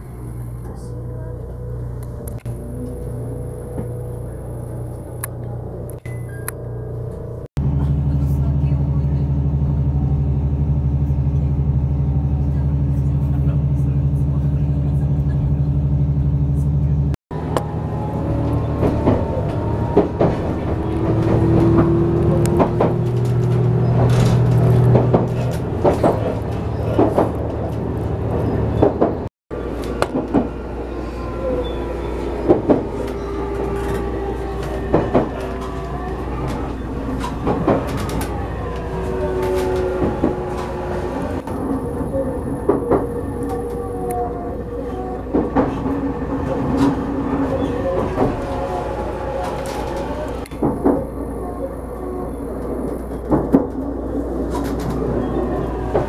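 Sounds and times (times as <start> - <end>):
train rumble: 0.0 - 56.0
wheels clicking over rail joints: 17.4 - 30.8, 31.4 - 56.0.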